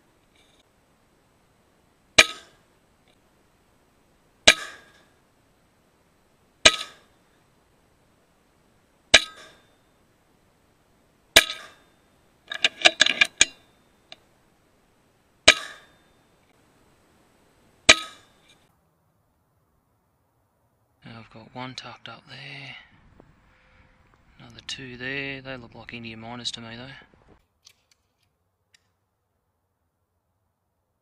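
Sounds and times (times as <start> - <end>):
small clatters: 12.5 - 14.3.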